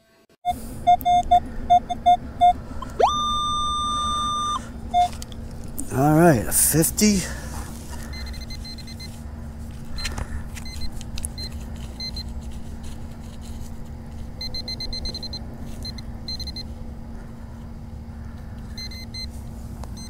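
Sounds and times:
metal detector beeping: 0.5s - 5.2s, 8.1s - 9.2s, 10.6s - 12.3s, 14.4s - 16.7s, 18.8s - 19.3s
low hum and rumble: 0.5s - 20.0s.

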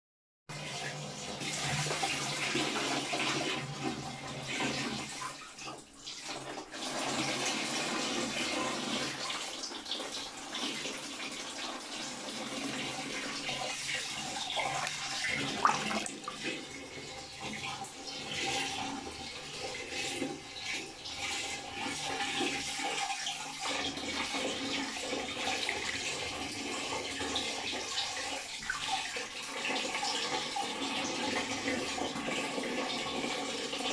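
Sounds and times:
water swirling and churning: 14.2s - 16.7s, 23.6s - 27.5s
sharp water splash: 14.5s - 16.4s.

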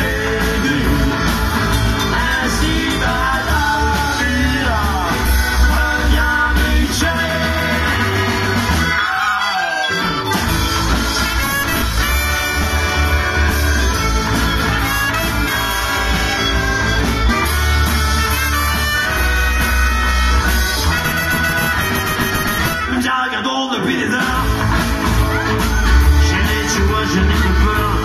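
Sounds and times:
trumpet: 0.0s - 23.4s
bass: 0.0s - 28.0s
drums: 0.0s - 28.0s
guitars: 0.0s - 28.0s
saxophone: 5.0s - 23.1s
trombone: 10.2s - 23.1s.

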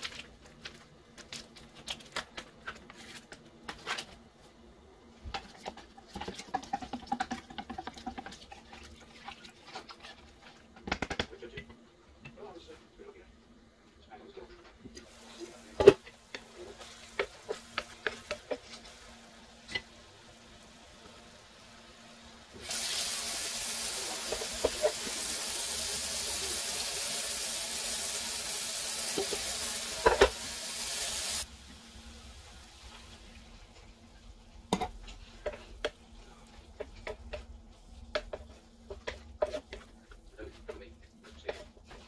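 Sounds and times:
wooden spoon scraping a pan: 5.3s - 11.0s, 14.9s - 20.0s, 24.0s - 25.3s, 32.9s - 42.0s
loud steady hiss: 22.5s - 32.2s.

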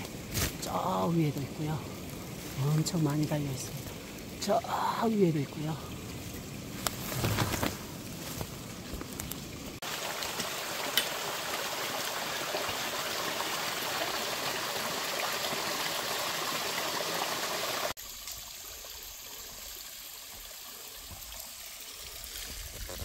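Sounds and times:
faint outdoor background: 0.0s - 10.1s
stream splashing over rocks: 0.0s - 23.0s.

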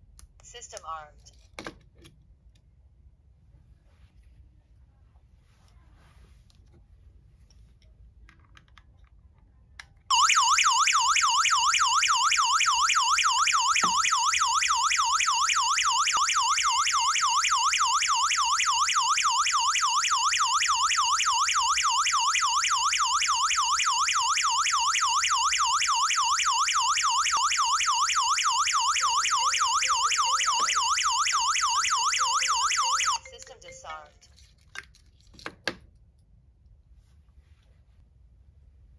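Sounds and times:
alarm siren electronic warble: 10.1s - 33.9s.

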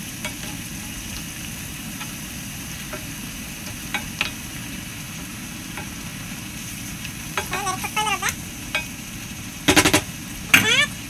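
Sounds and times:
food sizzling: 0.0s - 11.0s
wooden spoon scraping a skillet: 0.2s - 1.1s.

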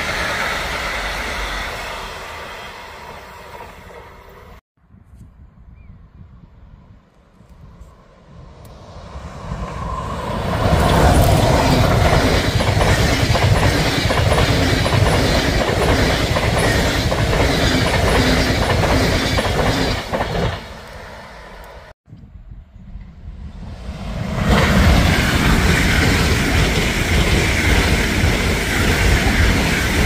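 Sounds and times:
passenger train passing: 0.0s - 4.6s, 8.0s - 22.0s, 22.8s - 30.0s
train wheels clattering on rail: 10.6s - 21.0s, 24.5s - 30.0s.

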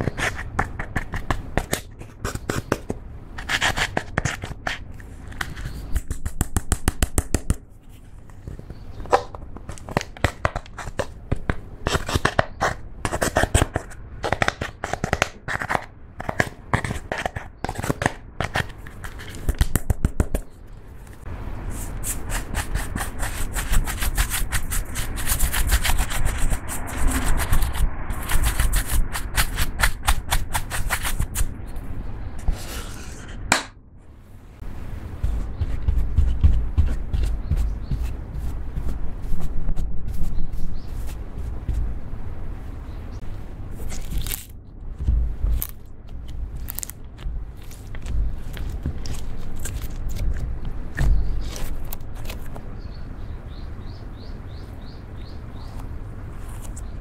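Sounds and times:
makeup brush sweeping: 34.6s - 42.0s.

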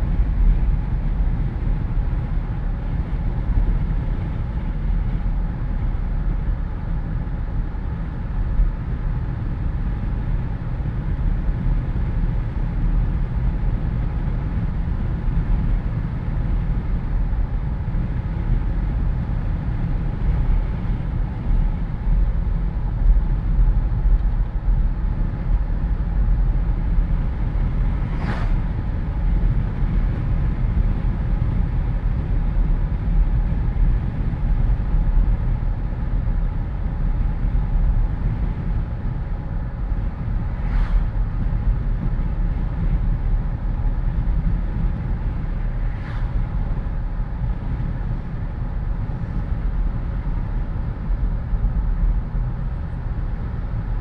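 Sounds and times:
deep low engine rumble: 0.0s - 54.0s
road noise: 0.0s - 54.0s.

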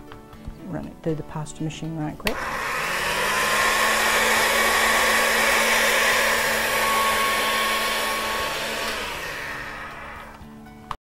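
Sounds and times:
pasta machine motor whirring: 2.3s - 10.5s.

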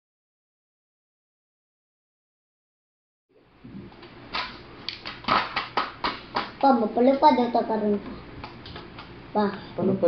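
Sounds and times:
low steady hum: 3.3s - 10.0s.

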